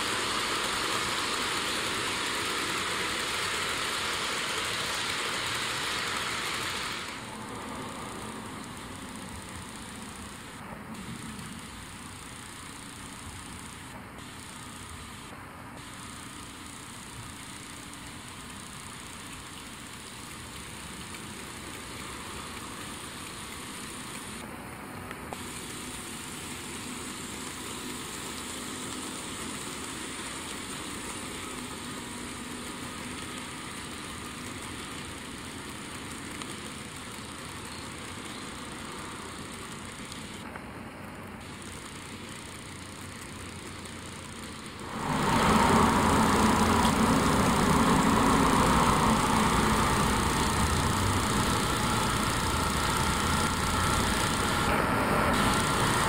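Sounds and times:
model train rolling on track: 0.0s - 56.0s.

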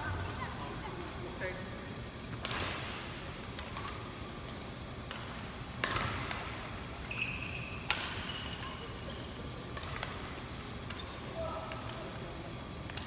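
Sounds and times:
racket hitting shuttlecock: 2.4s - 6.7s, 7.8s - 8.7s, 9.7s - 11.1s
shoe squeaks on court floor: 7.1s - 8.6s.

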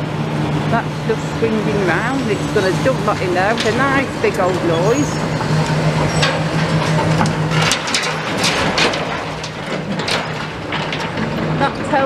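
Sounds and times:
excavator engine running: 0.0s - 12.0s
rubble crashing into steel skip: 5.4s - 12.0s.

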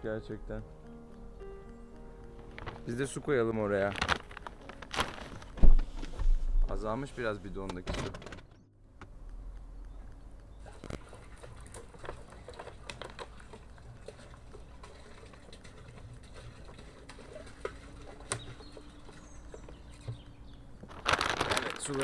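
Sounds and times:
water pouring into plastic drum: 10.7s - 19.9s.

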